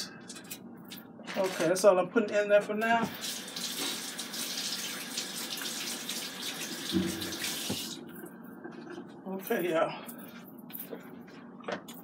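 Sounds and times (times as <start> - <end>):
water running from tap: 3.1 - 8.2.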